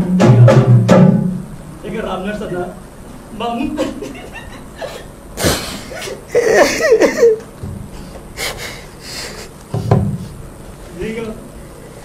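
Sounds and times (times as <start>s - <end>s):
man sobbing: 3.8s - 7.4s
man sniffing: 5.4s - 6.7s, 8.3s - 10.4s
heavy breaths: 7.9s - 10.4s.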